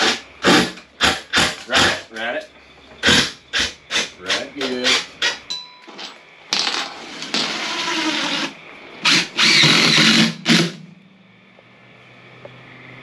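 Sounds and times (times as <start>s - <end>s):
impact driver driving screws into wood: 3.0s - 5.4s, 7.2s - 10.8s.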